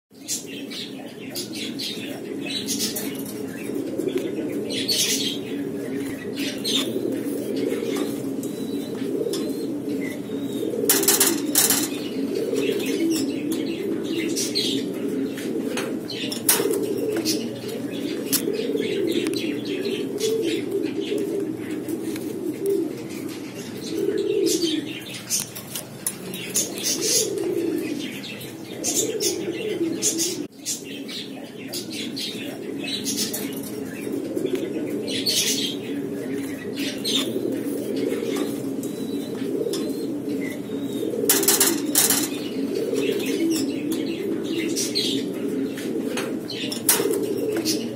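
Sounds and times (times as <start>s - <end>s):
pigeons cooing: 0.1s - 47.9s
wings flapping: 10.9s - 12.0s.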